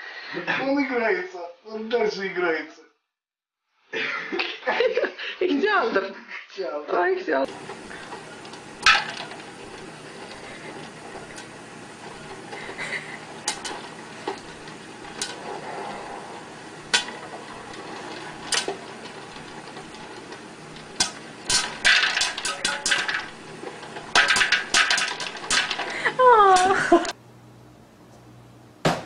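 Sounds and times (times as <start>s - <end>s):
popcorn popping: 7.5s - 27.2s.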